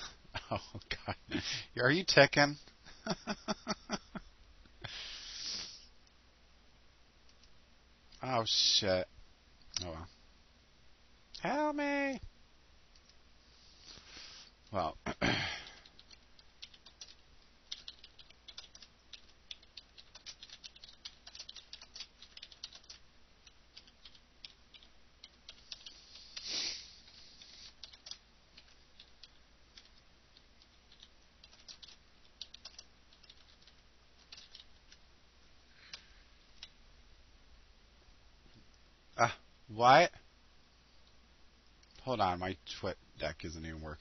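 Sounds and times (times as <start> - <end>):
keyboard typing: 15.8 - 26.4, 27.1 - 35.0.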